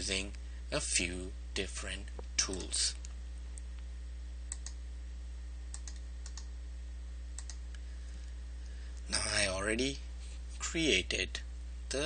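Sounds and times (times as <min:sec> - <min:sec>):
low electrical hum: 0:00.0 - 0:12.0
computer mouse clicks: 0:04.5 - 0:04.8, 0:05.7 - 0:06.5, 0:07.4 - 0:07.6.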